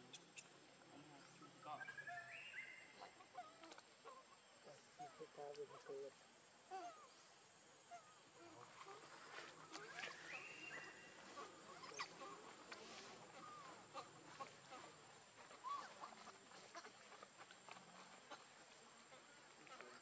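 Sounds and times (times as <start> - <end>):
small animals squeaking: 9.9 - 12.4, 15.5 - 17.4.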